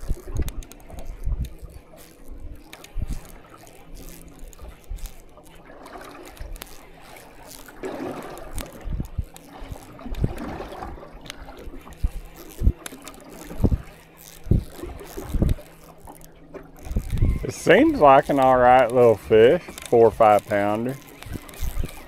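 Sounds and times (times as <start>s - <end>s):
wind buffeting microphone: 0.0s - 3.4s, 8.4s - 15.7s, 16.7s - 22.0s
electric motor hum: 0.0s - 22.0s
water slapping against boat hull: 0.0s - 22.0s.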